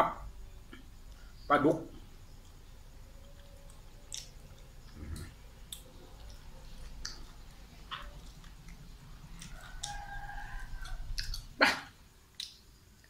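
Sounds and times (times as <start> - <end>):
man chewing: 2.4 - 13.0
wet clicks and smacks: 3.3 - 10.0, 12.3 - 13.0.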